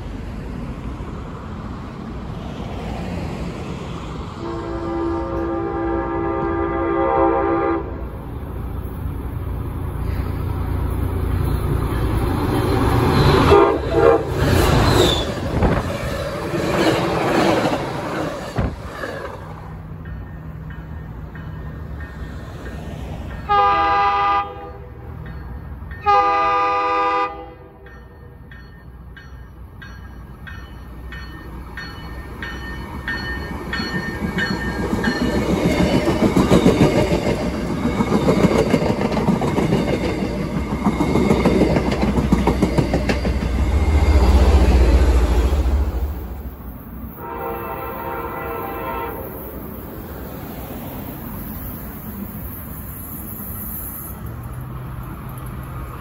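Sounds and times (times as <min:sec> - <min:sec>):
train passing loudly: 0:00.0 - 0:56.0
train horn: 0:04.4 - 0:08.1, 0:13.4 - 0:14.4, 0:23.4 - 0:25.1, 0:26.0 - 0:27.9, 0:47.2 - 0:49.6
train wheels clicking over rail joints: 0:28.4 - 0:44.8.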